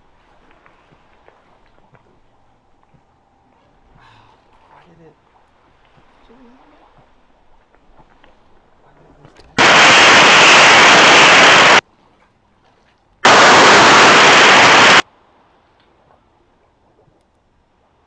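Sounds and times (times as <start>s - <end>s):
loud static hiss: 9.6s - 11.8s, 13.2s - 15.0s.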